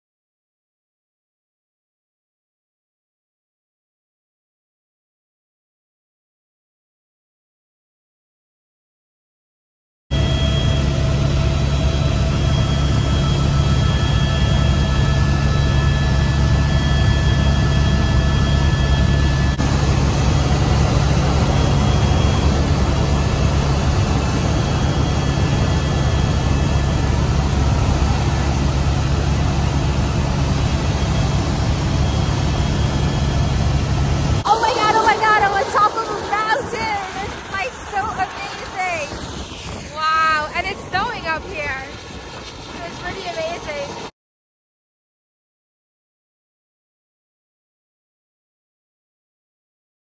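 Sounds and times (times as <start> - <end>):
helicopter rotor and engine drone: 10.1 - 44.2
faint steady whines: 10.2 - 44.1.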